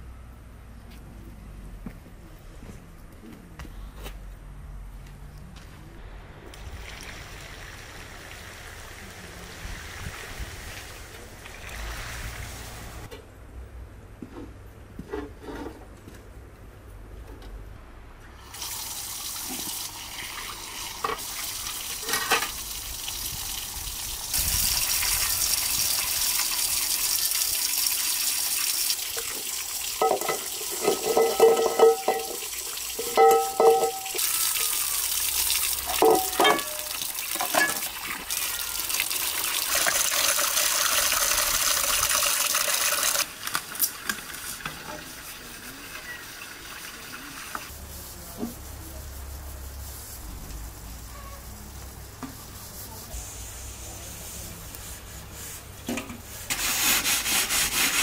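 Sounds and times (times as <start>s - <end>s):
tap water running into sink: 18.5s - 44.9s
metal pots clanking: 22.0s - 22.6s, 30.0s - 34.8s, 35.8s - 38.2s.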